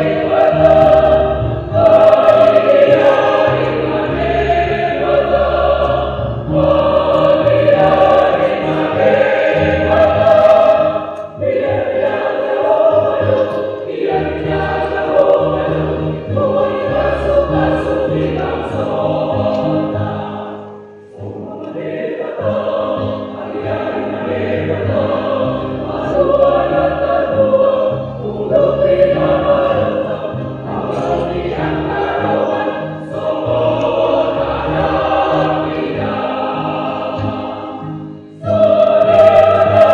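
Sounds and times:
choir singing a hymn: 0.0 - 39.9.

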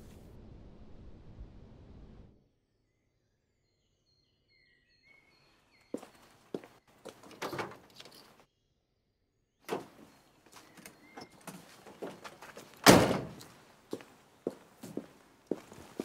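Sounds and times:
door shutting hard: 9.7 - 10.0, 12.8 - 13.4.

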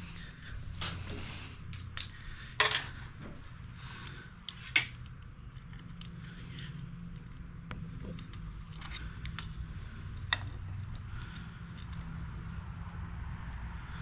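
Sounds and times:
metal cable clicking: 4.0 - 7.5.

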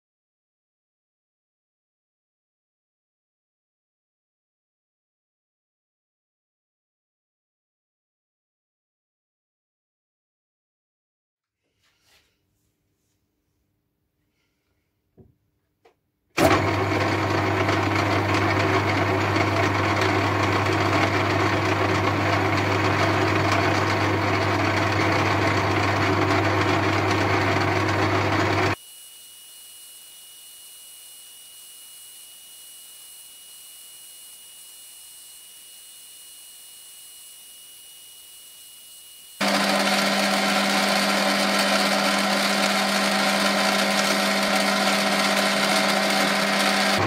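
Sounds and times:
metal lathe running: 16.4 - 47.0.

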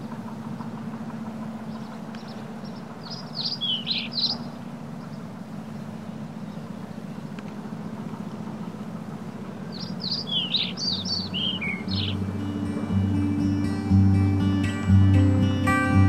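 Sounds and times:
steady low hum: 0.0 - 16.0
small bird chirping: 1.7 - 8.0, 9.6 - 12.2.

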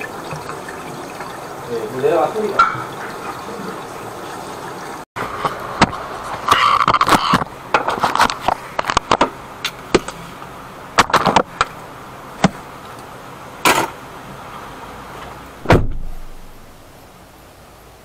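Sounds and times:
car door shutting: 15.6 - 16.6.

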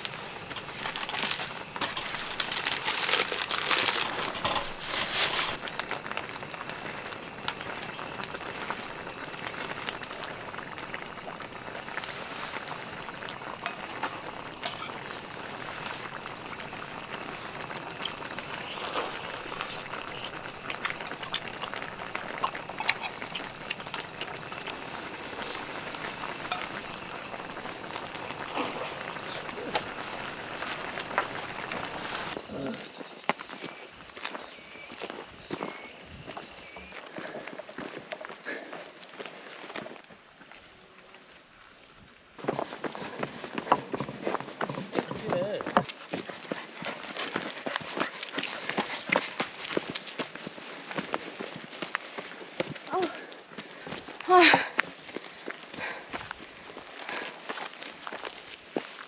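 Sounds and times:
food sizzling in a pan: 0.0 - 32.4.

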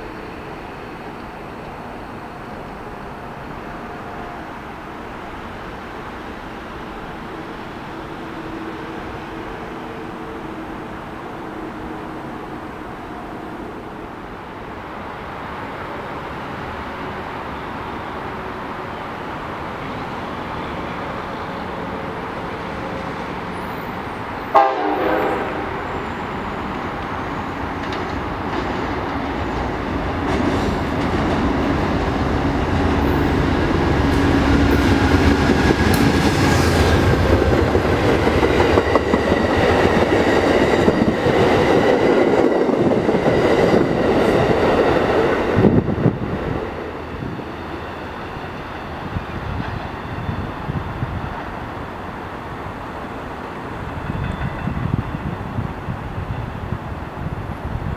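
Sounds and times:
train wheels rumbling on rail: 0.0 - 57.9
train horn: 24.4 - 26.4.

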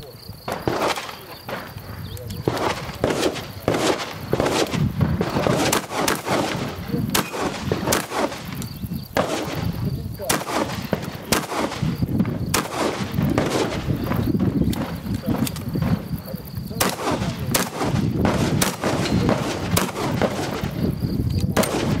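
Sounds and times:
shotgun shots: 0.5 - 1.8, 2.4 - 22.0.

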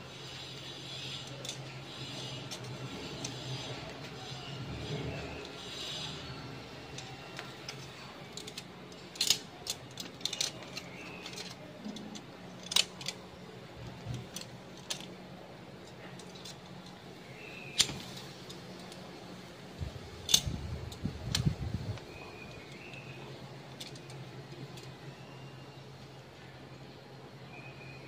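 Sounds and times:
low steady hum: 0.0 - 28.0
tongs clicking on grill grate: 6.9 - 13.2, 20.2 - 21.6.

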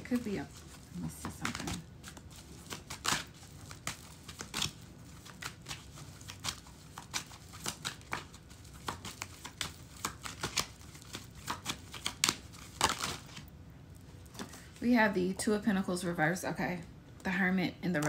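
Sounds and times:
cards being shuffled: 0.0 - 13.5.

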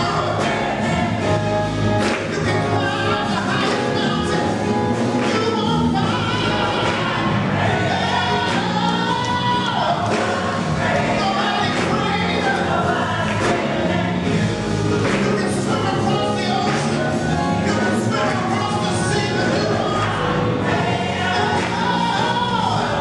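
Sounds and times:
choir singing: 0.0 - 23.0
man singing solo: 2.2 - 7.3, 15.2 - 20.5.

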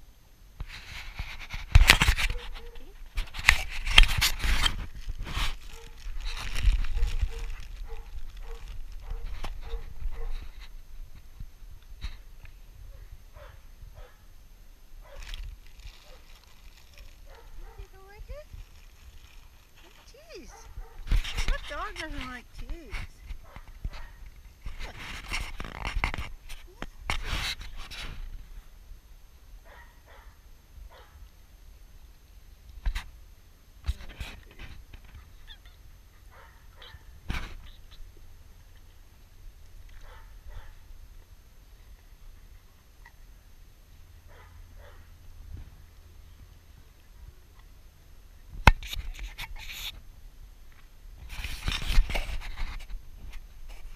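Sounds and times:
irregular rustling: 0.6 - 14.2, 15.0 - 28.6
rubbing against microphone: 0.6 - 14.2, 15.0 - 28.7, 33.9 - 39.0, 48.6 - 50.1, 51.2 - 53.9.

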